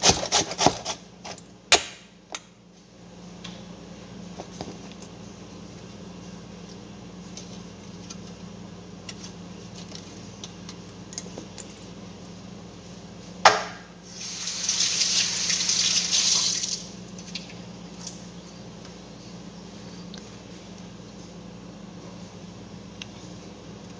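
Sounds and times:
water running from tap: 0:14.2 - 0:16.9.

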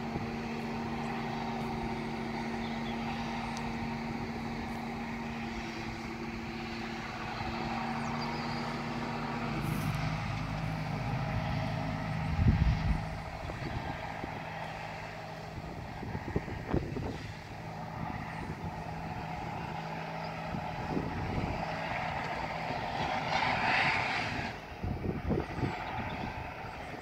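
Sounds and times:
distant tractor engine: 0:00.0 - 0:27.0
slurry spraying hiss: 0:16.8 - 0:17.9.

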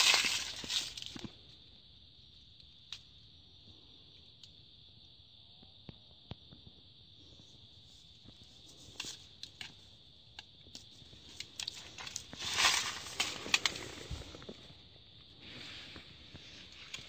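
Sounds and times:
hand brushing through leaves: 0:12.3 - 0:14.4.

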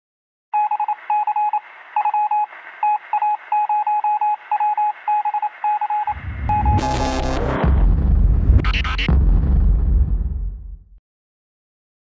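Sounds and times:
electronic beeps: 0:00.6 - 0:07.5.

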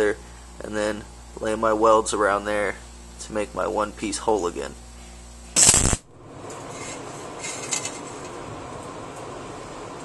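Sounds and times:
steady hiss: 0:04.0 - 0:06.0
welding crackle: 0:05.6 - 0:06.1.

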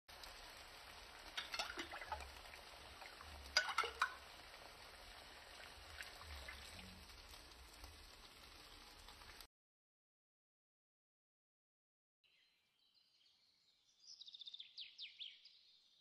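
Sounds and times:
green beans sizzling in pan: 0:00.1 - 0:09.5.

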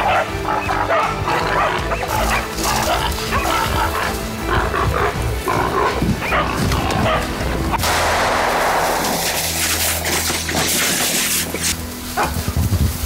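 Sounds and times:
boar crying: 0:00.0 - 0:07.8
dogs barking: 0:00.0 - 0:07.8, 0:12.1 - 0:12.6
background music: 0:00.0 - 0:13.0.

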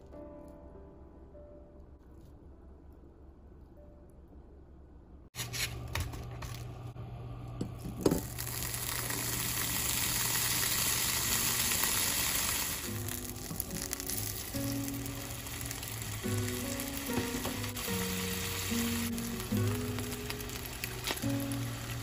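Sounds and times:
fish sizzling in a frying pan: 0:08.2 - 0:22.0.

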